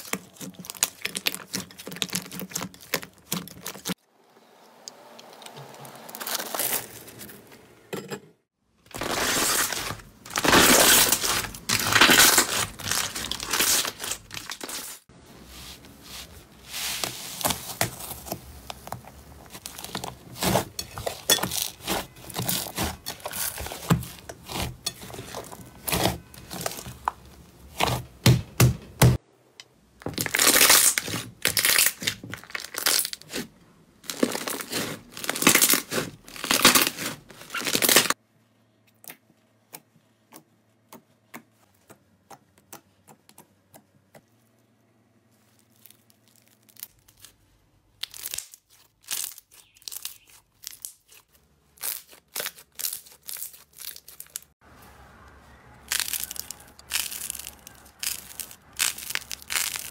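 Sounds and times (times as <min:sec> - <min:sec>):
hands squeezing sticky slime: 0:55.8 - 0:59.9.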